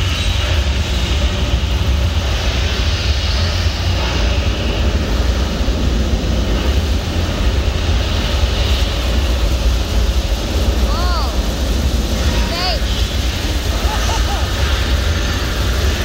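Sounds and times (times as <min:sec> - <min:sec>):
rocket launch deep rumble: 0:00.0 - 0:16.0.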